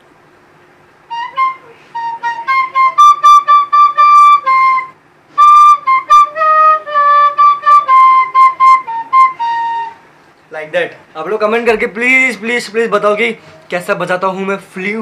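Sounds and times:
end-blown flute melody: 1.1s - 10.1s.

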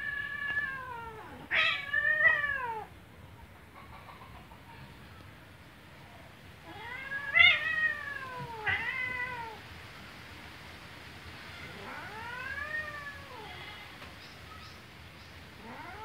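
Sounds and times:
cat yowling in distress: 0.0s - 2.9s, 6.7s - 9.6s, 11.6s - 13.9s, 15.6s - 16.0s.

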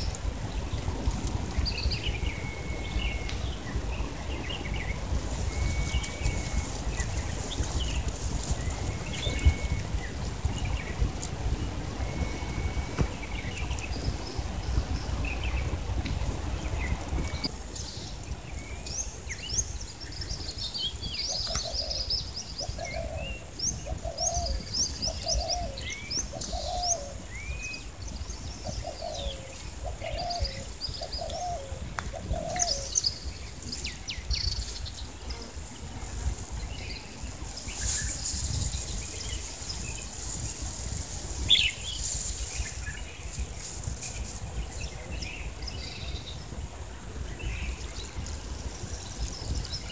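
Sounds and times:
small birds chirping: 0.0s - 49.9s
dove cooing: 28.8s - 32.9s.

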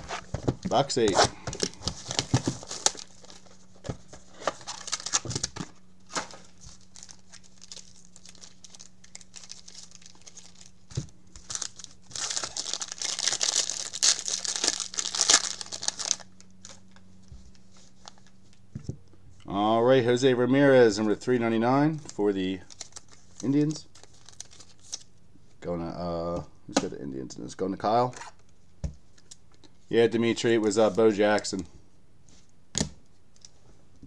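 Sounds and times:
faint hum: 0.0s - 34.0s
plastic wrapper crinkling: 1.6s - 18.6s, 22.0s - 25.1s.

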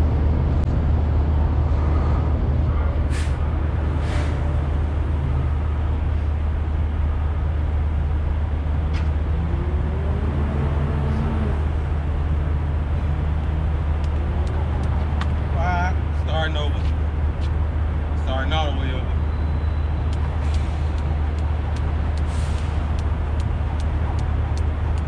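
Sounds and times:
short hisses: 3.1s - 3.4s, 4.0s - 4.4s.

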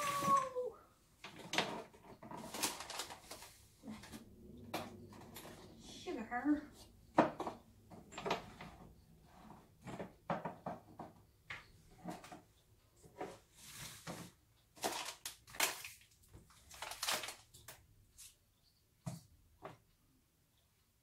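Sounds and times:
kitchen utensils knocking and clattering: 7.1s - 8.9s, 9.8s - 11.2s.

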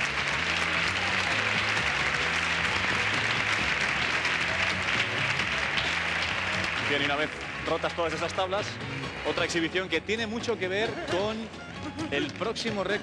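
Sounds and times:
audience applauding: 0.0s - 9.9s
background music with bass line: 0.0s - 13.0s.

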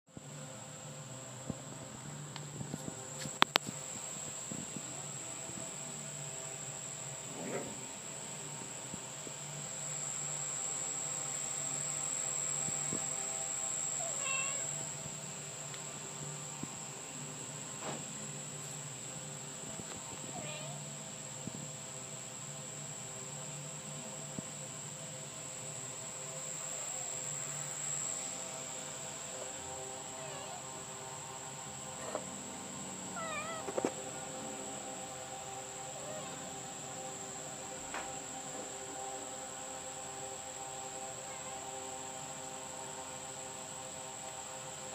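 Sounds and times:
steady high whine: 0.1s - 44.9s
crickets trilling: 1.3s - 44.9s
kitten meowing: 14.0s - 14.7s, 30.1s - 30.6s, 33.2s - 33.8s
faint wavering calls: 30.0s - 30.9s, 35.7s - 36.9s.

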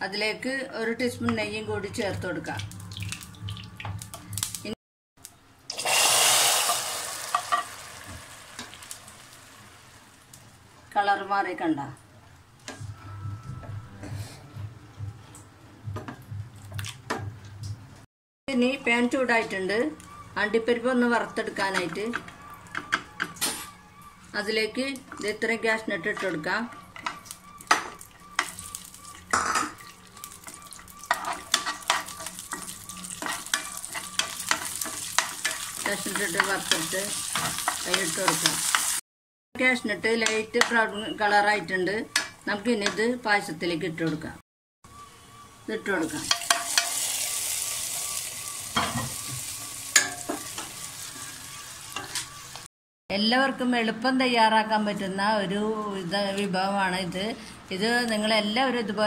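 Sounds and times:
hot sugar sizzling in milk: 5.7s - 10.6s, 28.4s - 39.0s, 46.0s - 52.7s
metal spoon scraping and tapping pan: 26.0s - 38.9s, 40.2s - 40.8s, 42.1s - 43.1s, 46.2s - 47.3s, 48.8s - 50.8s, 52.0s - 52.3s.

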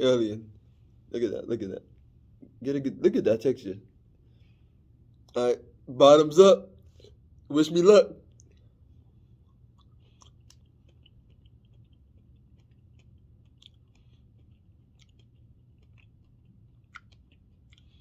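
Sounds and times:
wet chewing sounds: 8.2s - 18.0s
small mouth clicks: 9.5s - 18.0s.

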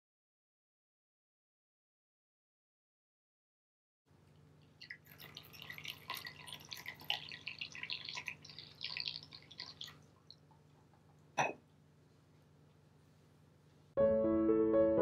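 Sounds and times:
tea pouring into cup: 4.8s - 10.4s.

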